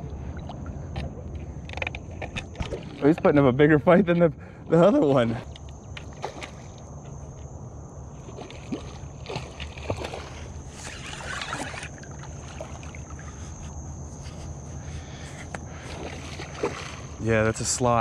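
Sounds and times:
low rumble of hull handling: 0.0 - 18.0
water splash: 8.2 - 13.2, 15.9 - 17.2
rod and reel clicks: 10.7 - 12.1.

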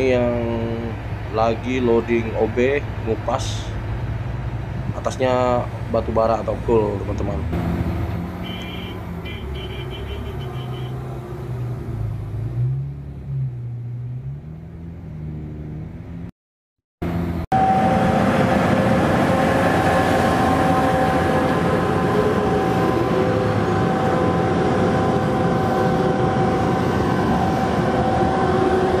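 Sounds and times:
truck diesel engine pulling away: 6.6 - 16.1, 17.0 - 29.0
drone with held tones: 17.5 - 29.0.

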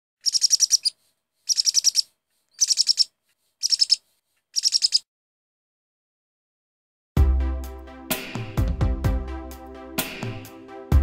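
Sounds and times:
bird chirping: 0.2 - 4.0, 4.6 - 5.0.

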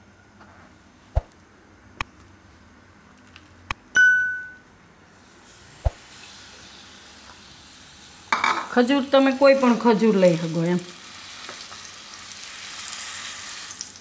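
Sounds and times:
bright ding: 4.0 - 4.7
food sizzling in hot fat: 5.1 - 14.0.

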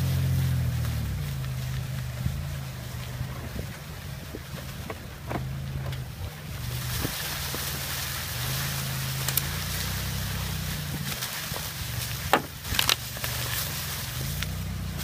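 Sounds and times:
small engine running: 6.4 - 15.0.

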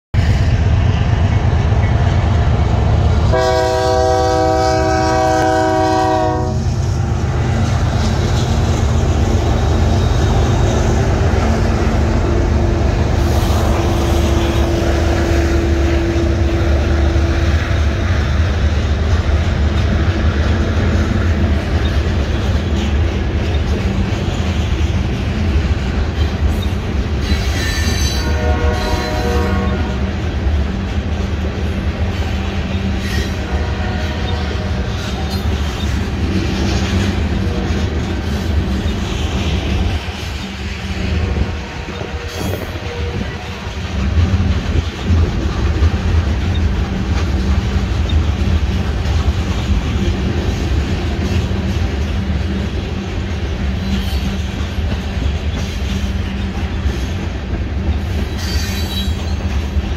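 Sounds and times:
freight train rumbling on rails: 0.1 - 59.9
train horn blast: 3.2 - 6.9, 9.6 - 17.8, 27.6 - 30.2, 32.8 - 35.4, 41.3 - 43.7.

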